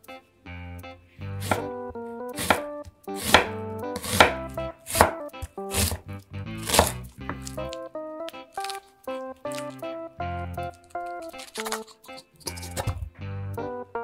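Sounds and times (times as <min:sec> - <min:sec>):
light background music: 0:00.0 - 0:14.0
knife chopping on wooden board: 0:01.4 - 0:01.7, 0:02.4 - 0:07.8, 0:11.3 - 0:13.0.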